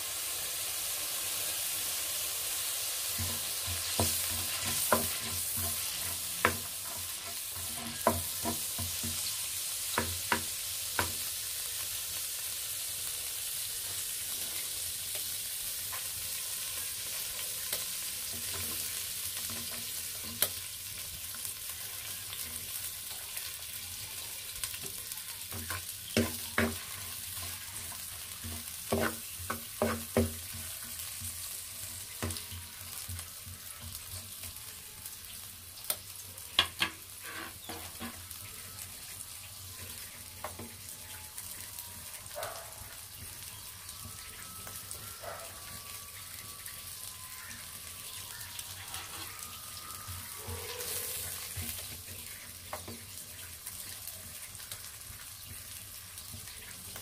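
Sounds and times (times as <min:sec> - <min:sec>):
oil sizzling in a pot: 0:00.0 - 0:57.0
wooden spatula scraping clay pot: 0:37.2 - 0:38.2.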